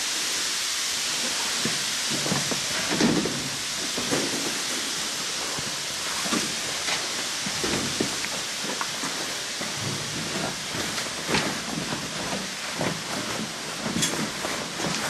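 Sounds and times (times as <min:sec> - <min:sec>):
steady hiss: 0:00.0 - 0:15.0
dull footsteps: 0:05.5 - 0:15.0.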